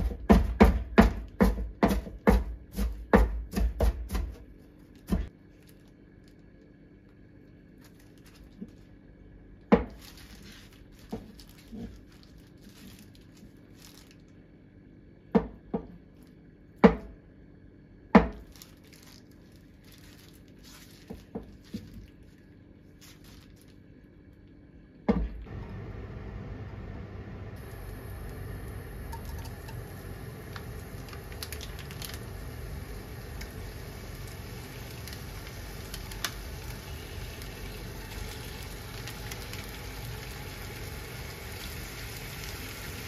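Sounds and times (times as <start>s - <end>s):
soft rustling: 18.5s - 23.9s.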